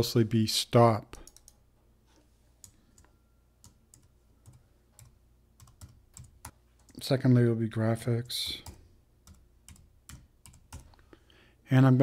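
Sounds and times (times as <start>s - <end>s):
keyboard typing clicks: 1.2s - 1.6s, 2.6s - 7.0s, 8.6s - 11.0s.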